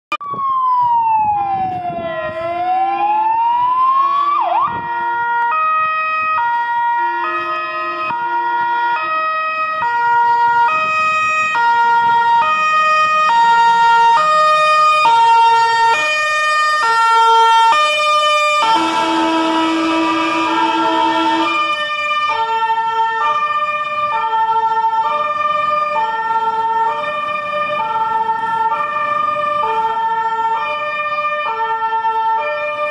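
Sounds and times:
fire engine siren wailing: 0.1 - 32.9.

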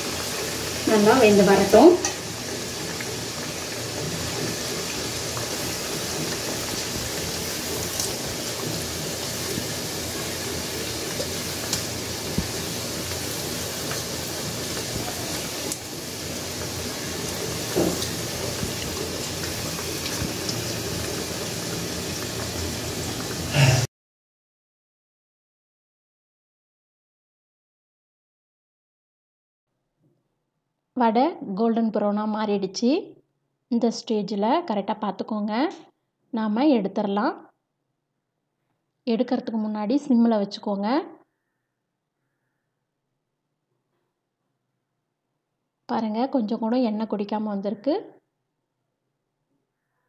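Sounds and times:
oil sizzling and bubbling: 0.0 - 23.9.

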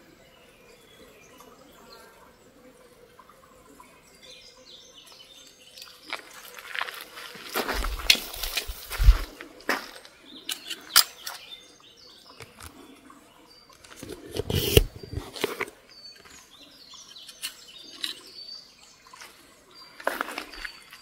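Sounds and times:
twigs snapping: 5.8 - 11.4
footsteps rustling through grass: 6.0 - 10.1
bird chirping: 7.7 - 21.0.

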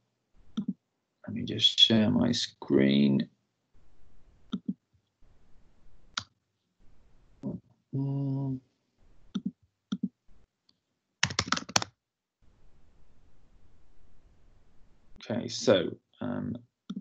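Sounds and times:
computer mouse clicks: 9.3 - 10.1
keyboard typing: 11.2 - 11.9.

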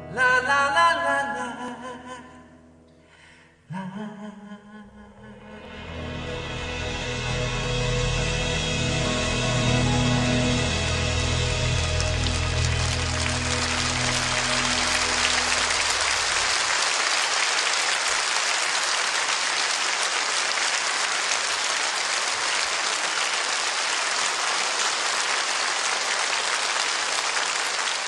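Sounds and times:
audience applause: 10.3 - 28.0.

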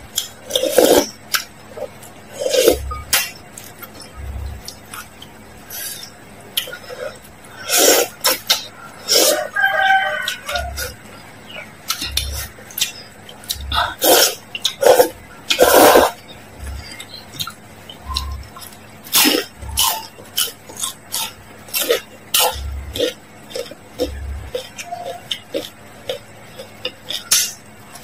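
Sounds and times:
crunching of fried food: 0.0 - 11.0, 11.8 - 28.0
wet chewing: 0.0 - 28.0
noodles slurped: 5.9 - 9.5, 11.9 - 16.2
mouth clicks: 10.2 - 28.0.

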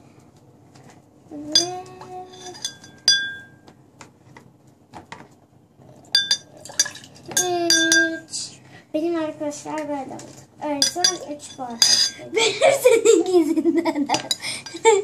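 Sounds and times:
spoons clinking against glasses: 1.6 - 3.6, 6.2 - 8.2, 10.8 - 12.3.

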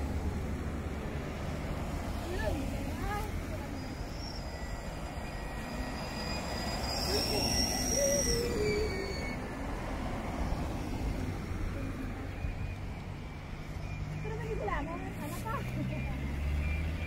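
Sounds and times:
cars driving past: 0.0 - 17.0
high steady whistling tone: 3.0 - 9.7.

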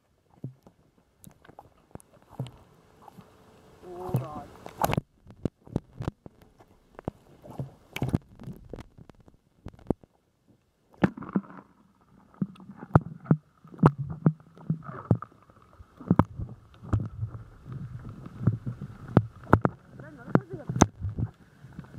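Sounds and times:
muffled water sloshing and gurgling: 0.0 - 21.9
sharp clicks and knocks: 16.0 - 21.4.

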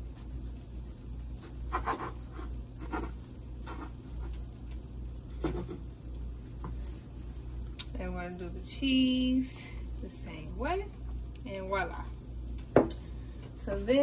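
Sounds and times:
low steady hum: 0.0 - 14.0
bread knife sawing tortillas: 1.7 - 4.0.

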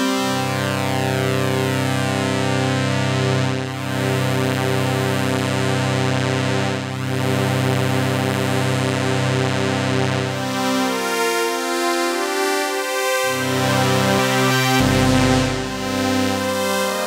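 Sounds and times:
synthesizer sustained wavering notes: 13.1 - 17.0.

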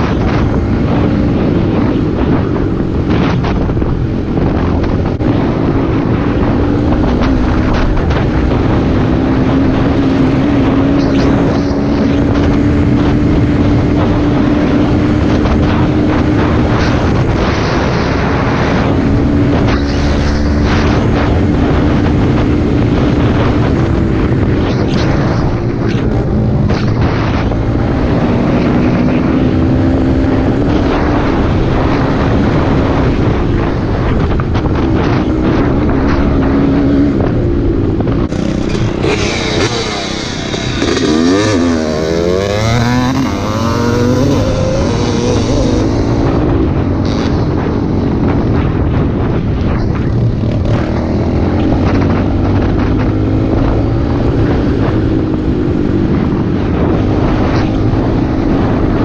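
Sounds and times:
dirt bike engine running: 0.0 - 59.0
wind buffeting microphone: 0.0 - 59.0.

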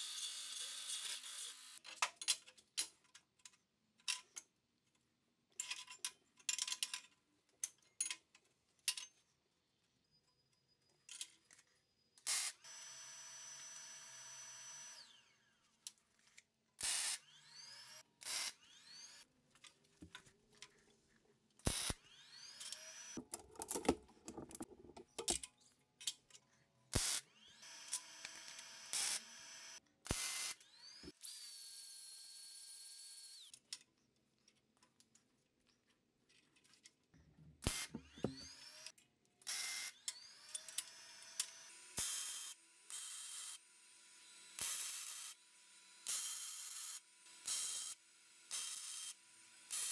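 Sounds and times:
power tool running: 12.3 - 15.6, 16.8 - 19.2, 21.6 - 23.7, 27.0 - 31.7, 37.6 - 38.9.

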